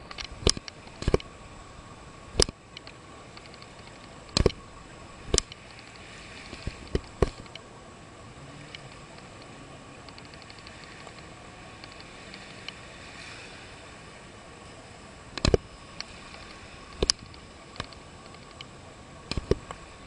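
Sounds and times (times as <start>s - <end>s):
sharp clicks and knocks: 0.0s - 1.3s, 2.4s - 4.6s, 5.3s - 5.6s, 6.5s - 7.6s, 15.4s - 18.7s, 19.3s - 19.8s
faint steady whine: 0.0s - 20.0s
steady hiss: 0.0s - 20.0s.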